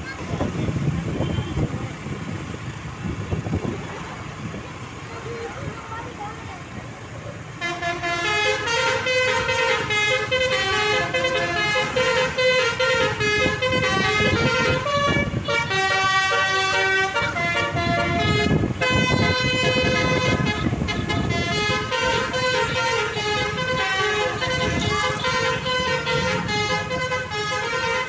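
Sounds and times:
low vehicle rumble: 0:00.0 - 0:28.0
bus horn playing a melody: 0:07.5 - 0:28.0.

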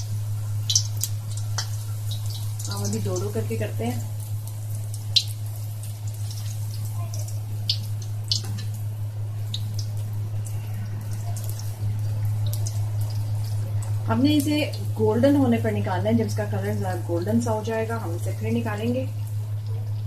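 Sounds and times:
oil crackling and popping: 0:00.0 - 0:15.6
steady low hum: 0:00.0 - 0:20.0.

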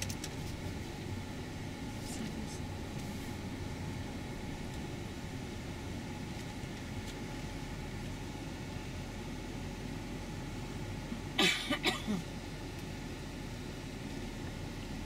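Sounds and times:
bus engine rumble: 0:00.0 - 0:15.0
person coughing: 0:11.3 - 0:12.3.

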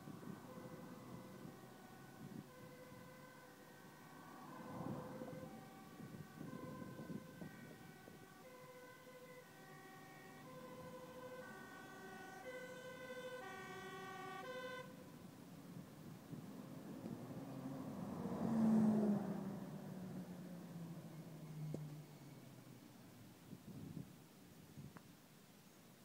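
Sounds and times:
two-tone fire engine siren: 0:00.0 - 0:15.1
passing car traffic: 0:00.0 - 0:23.6.

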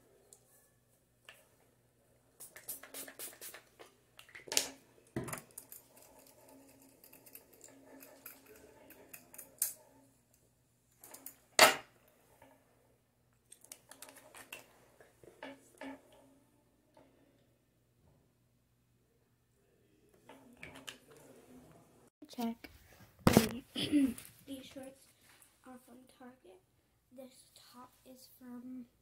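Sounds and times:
spray bottle sprays: 0:02.4 - 0:03.8.

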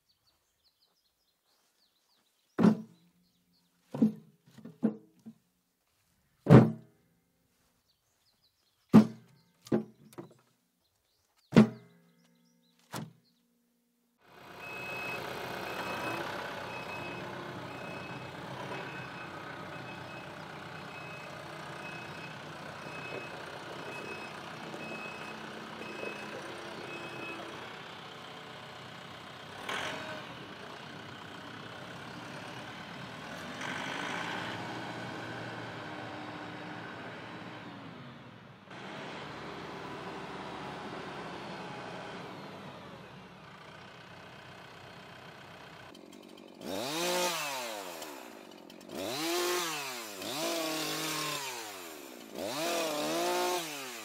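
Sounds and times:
tractor diesel engine running: 0:14.2 - 0:54.0
reverse alarm beeping: 0:14.6 - 0:18.2, 0:22.9 - 0:27.4.

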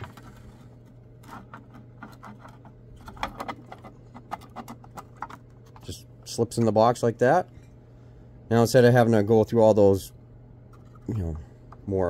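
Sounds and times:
hard plastic clicking and scraping: 0:00.0 - 0:06.0
low steady hum: 0:00.0 - 0:12.0.

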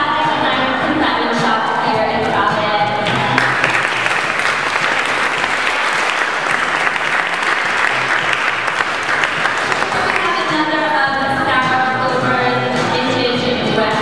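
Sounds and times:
audience clapping: 0:03.0 - 0:10.5.

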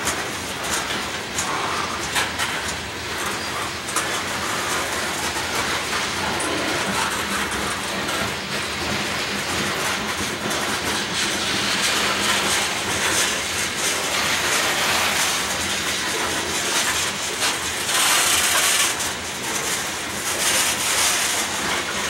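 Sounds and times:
train wheels rumbling on rail: 0:00.0 - 0:22.0
wheels clicking over rail joints: 0:00.0 - 0:22.0.

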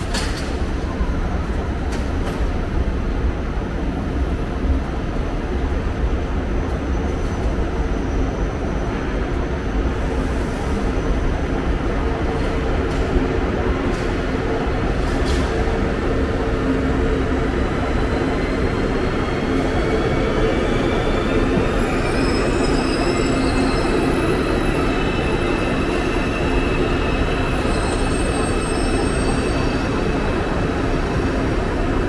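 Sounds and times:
train rumbling on rails: 0:00.0 - 0:32.0.

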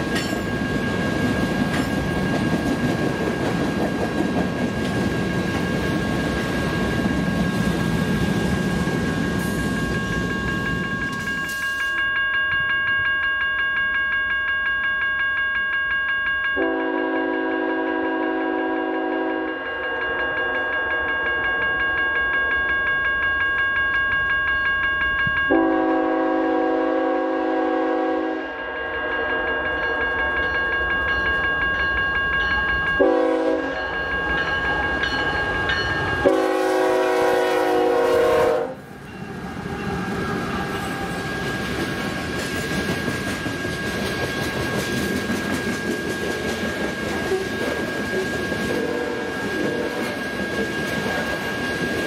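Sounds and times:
train wheels clickety-clack on rails: 0:00.0 - 0:12.7, 0:29.7 - 0:52.0
railroad crossing bell ringing: 0:00.0 - 0:52.0
locomotive horn blasts: 0:16.6 - 0:19.7, 0:25.5 - 0:28.6, 0:33.0 - 0:33.8, 0:36.2 - 0:38.9, 0:48.7 - 0:50.2.

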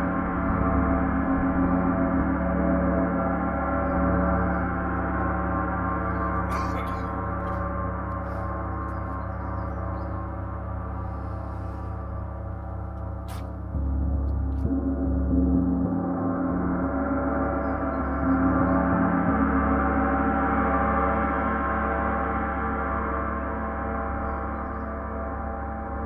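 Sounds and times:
gong shimmering wash: 0:00.0 - 0:26.0.

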